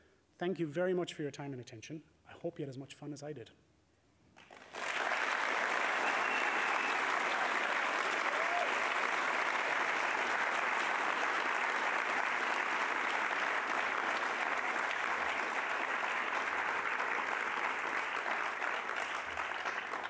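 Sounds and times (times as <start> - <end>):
audience applauding: 4.4 - 20.0.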